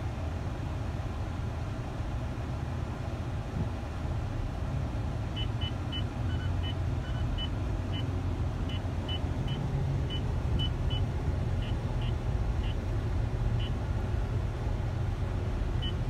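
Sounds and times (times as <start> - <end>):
vehicle rumble from inside cabin: 0.0 - 16.0.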